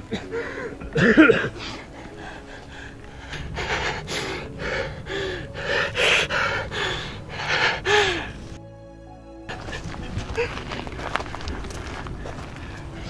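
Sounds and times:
man panting and gasping: 0:00.0 - 0:08.6.

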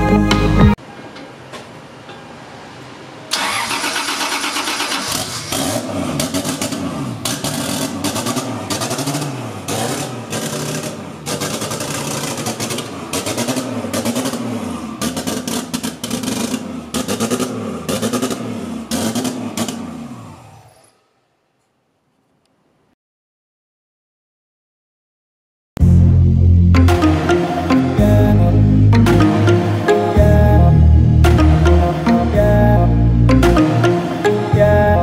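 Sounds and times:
car engine revving: 0:03.3 - 0:20.8.

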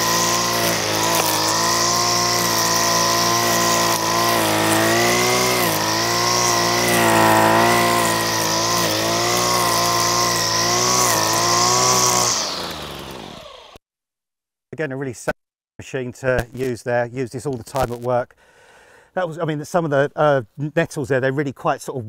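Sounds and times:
line trimmer cutting nettles: 0:00.0 - 0:13.8.

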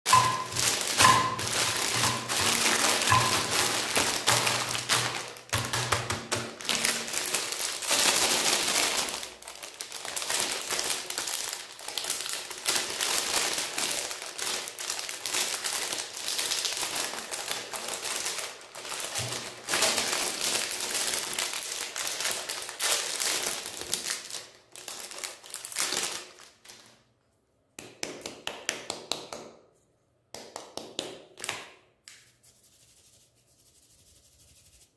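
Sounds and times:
wrappers crinkling and rustling: 0:00.1 - 0:27.1.

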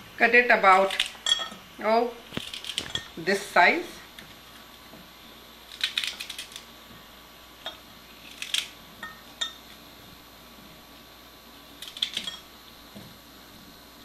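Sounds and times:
knife clinking against glass: 0:01.2 - 0:01.6.

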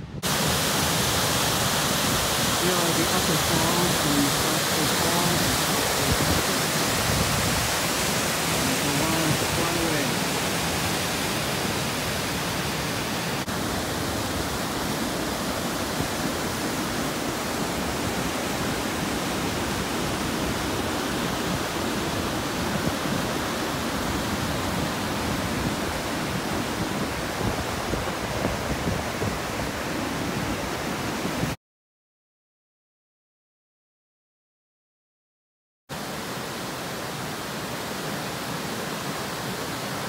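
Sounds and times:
water pouring over stone ledges: 0:00.2 - 0:10.7.

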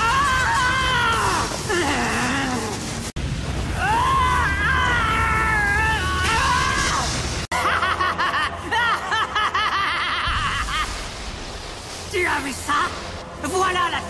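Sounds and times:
cackling laughter: 0:07.5 - 0:11.1.

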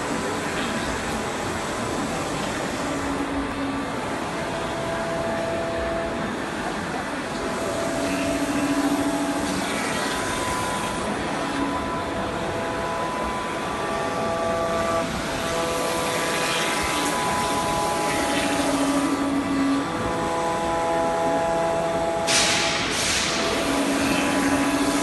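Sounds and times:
low machine tone: 0:00.0 - 0:25.0
router spindle whine: 0:00.0 - 0:25.0.

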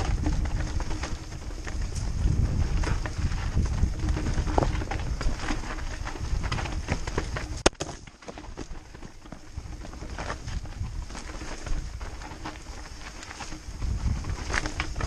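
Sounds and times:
bike rattling: 0:00.0 - 0:15.0
tyres knocking over rock: 0:02.4 - 0:13.6.

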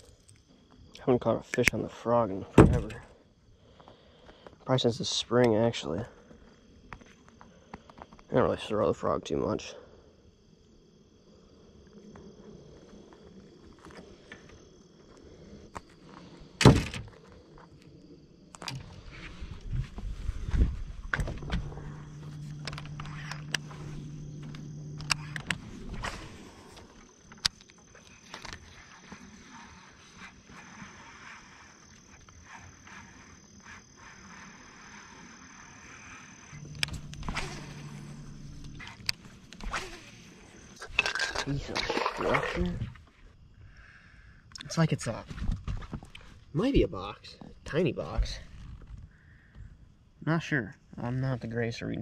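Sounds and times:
insects buzzing: 0:00.0 - 0:52.0
thin high whine: 0:18.7 - 0:27.4, 0:28.0 - 0:40.8.

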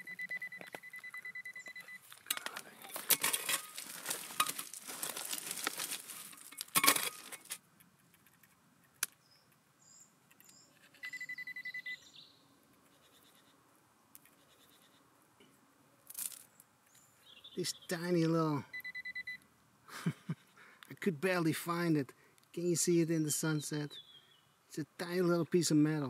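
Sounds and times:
metal detector pulsing beep: 0:00.0 - 0:02.0, 0:10.9 - 0:12.0, 0:18.7 - 0:19.4
hand digger scraping stony ground: 0:02.2 - 0:07.6.

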